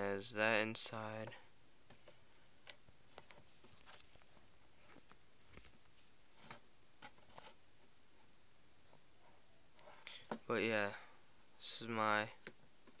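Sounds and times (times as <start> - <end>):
leather box ticks and rubs: 2.7 - 6.0.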